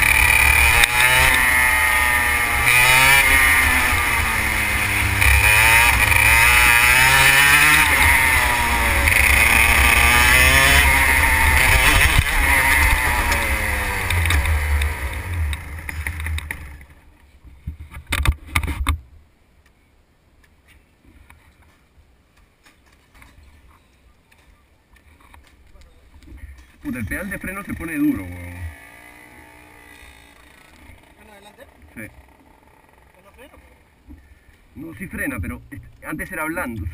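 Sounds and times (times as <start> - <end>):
kart engine revving: 0.0 - 16.9, 27.0 - 33.9.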